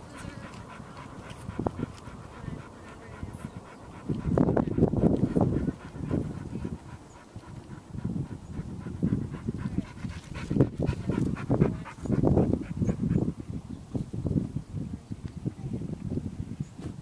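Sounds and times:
dog panting: 0.0 - 13.4.

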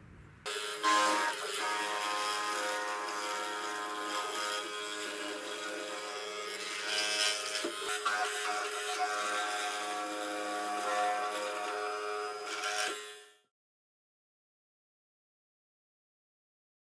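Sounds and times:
mortiser motor buzzing: 0.5 - 13.4.

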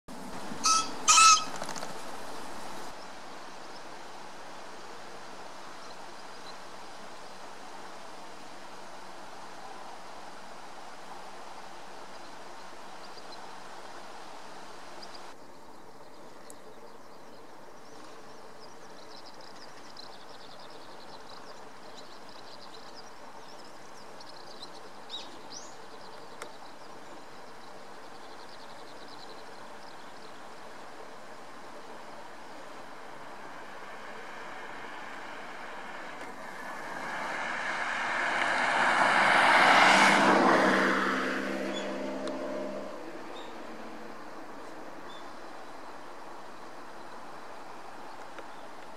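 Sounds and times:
steady background hiss: 0.1 - 48.9
motor vehicle passing by: 33.4 - 44.1.

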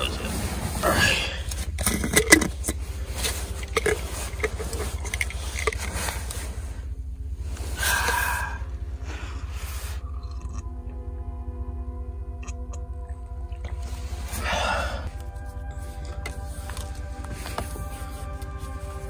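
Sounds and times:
gear clicks and scrapes: 0.0 - 7.7
steady low rumble: 0.0 - 19.0
fabric rustling: 15.1 - 19.0.

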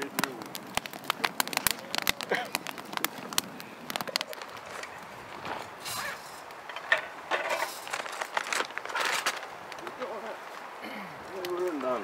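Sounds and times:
wood fire crackling and popping: 0.0 - 12.0
wooden poles creaking and knocking: 0.8 - 9.5.

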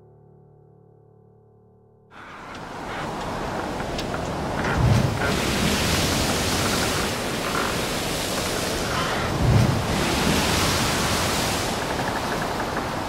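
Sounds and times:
ocean surf breaking on rocks: 2.2 - 13.0.

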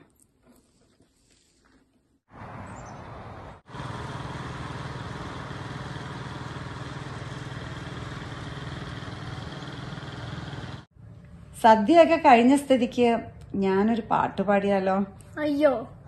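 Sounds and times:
motor-like drone: 3.2 - 10.9.

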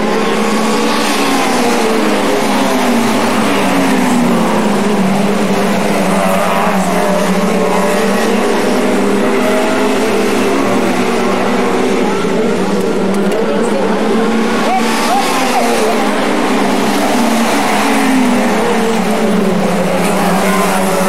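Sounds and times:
race car engines revving: 0.0 - 21.0.

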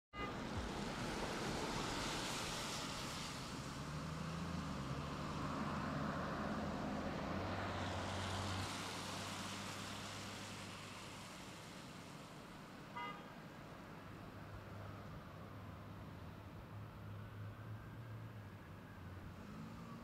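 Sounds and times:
tyre hiss on wet road: 0.4 - 6.7, 7.4 - 13.3.

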